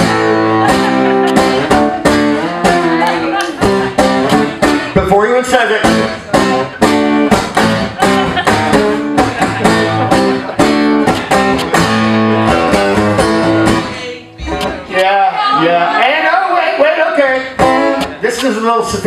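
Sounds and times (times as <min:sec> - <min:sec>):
acoustic guitar strummed hard: 0:00.0 - 0:14.8, 0:16.8 - 0:18.2
man's voice: 0:04.9 - 0:06.3, 0:14.5 - 0:19.0.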